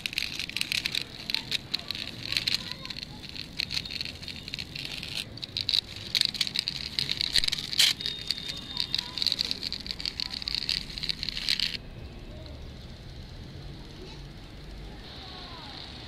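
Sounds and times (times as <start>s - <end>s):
toy truck wheels grinding on concrete: 0.0s - 11.8s.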